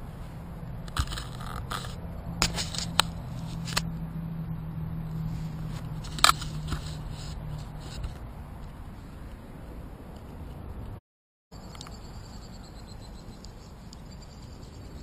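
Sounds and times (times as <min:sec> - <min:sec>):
reeds scraping against camera: 0:00.1 - 0:04.0, 0:05.1 - 0:09.5.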